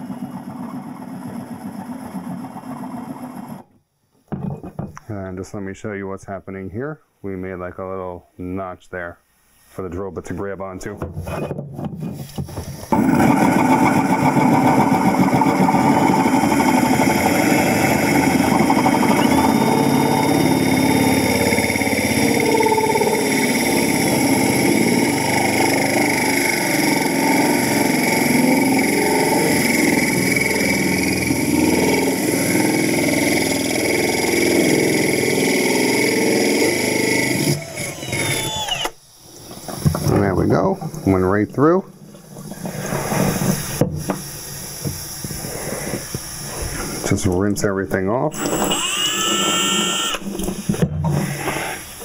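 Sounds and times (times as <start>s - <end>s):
drill grinding through glass: 12.9s - 39.0s, 48.3s - 50.6s.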